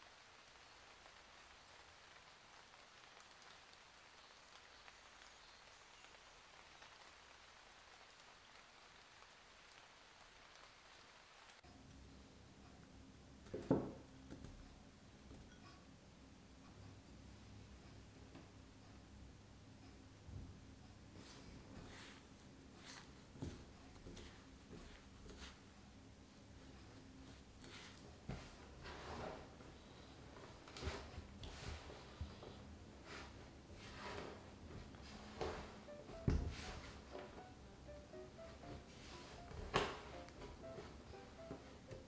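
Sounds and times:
light rain patter: 0.0s - 12.1s.

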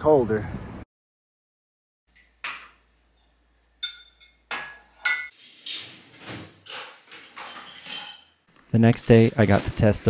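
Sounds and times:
dishes and utensils clinking: 2.1s - 8.5s.

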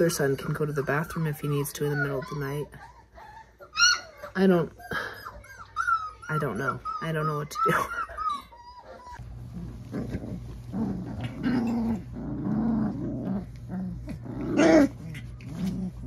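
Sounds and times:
puppies play-growling and yipping: 0.0s - 16.0s
steady low hum: 6.5s - 16.0s.

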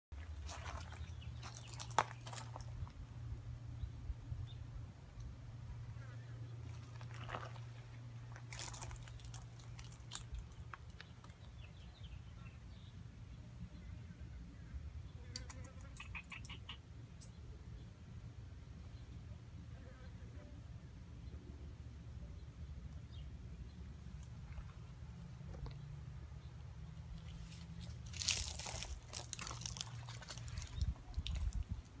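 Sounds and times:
steady low hum: 0.1s - 32.0s
flip-flop footsteps on gravel: 0.2s - 2.9s, 6.6s - 11.4s, 27.3s - 31.6s.

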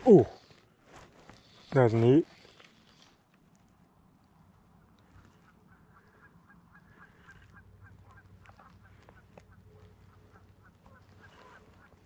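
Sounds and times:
faint waterfowl calling: 4.6s - 12.0s.

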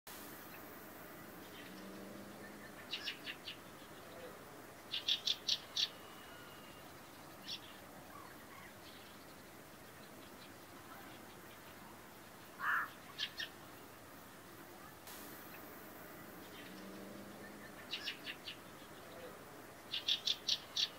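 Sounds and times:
bird chattering calls: 12.6s - 13.6s.

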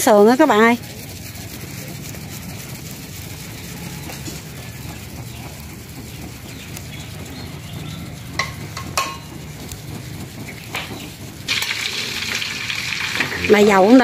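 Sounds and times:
low steady rumble: 0.0s - 14.0s
metallic clinks of pan and utensils: 8.4s - 9.3s.

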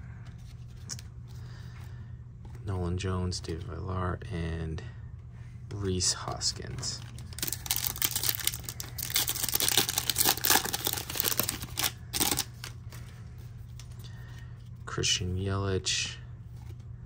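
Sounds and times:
handling of cards: 0.1s - 3.8s, 6.2s - 14.9s
foil wrapper crinkling: 7.0s - 13.0s.

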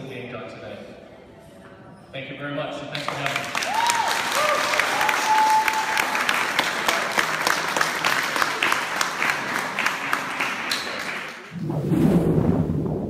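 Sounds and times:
audience applauding: 3.0s - 11.5s.

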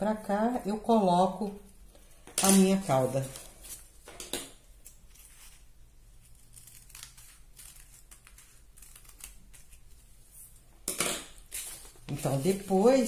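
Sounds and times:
scissors snipping paper: 6.3s - 10.0s.

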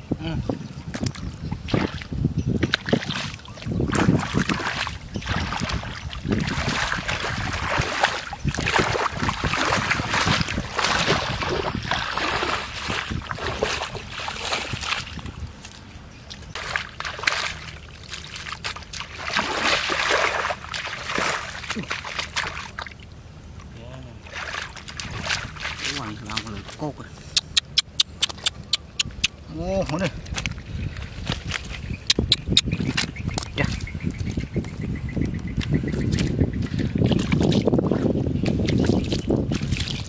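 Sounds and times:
muddy water splashing: 0.4s - 40.0s.

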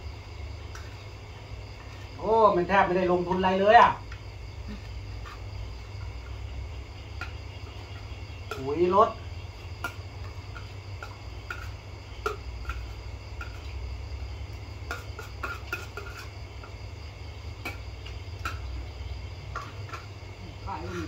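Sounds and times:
crickets chirring: 0.0s - 21.0s
spoons clinking on ceramic plates: 14.9s - 16.7s.

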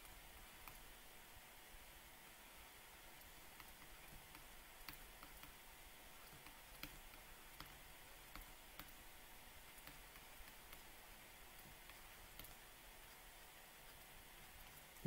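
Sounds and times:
faint hiss: 0.0s - 15.0s
stylus tapping tablet screen: 3.1s - 15.0s.

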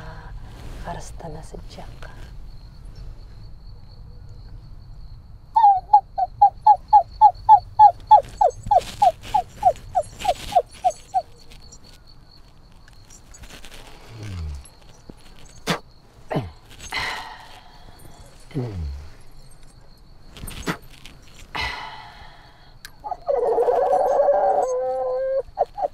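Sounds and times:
breathy hisses: 16.3s - 19.6s, 21.5s - 22.9s.

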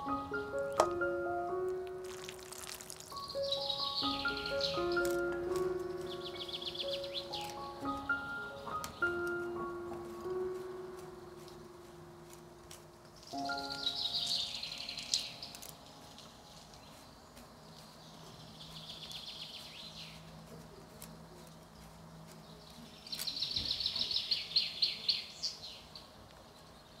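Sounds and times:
birds trilling: 3.2s - 9.7s, 13.0s - 20.3s.

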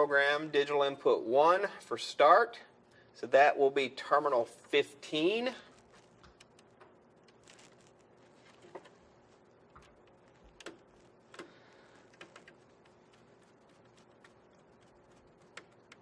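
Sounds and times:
faint clicks and ticks: 4.6s - 16.0s.

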